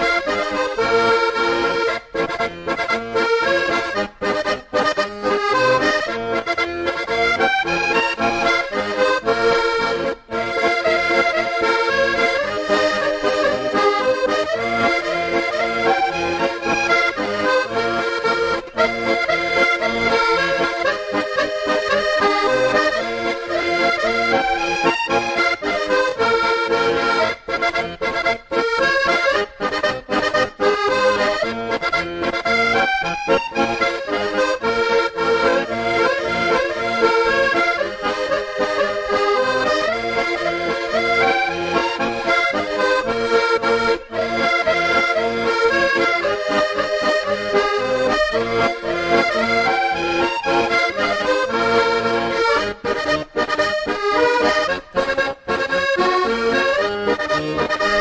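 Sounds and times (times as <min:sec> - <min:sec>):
accordion sea shanty tune: 0:00.0 - 0:58.0.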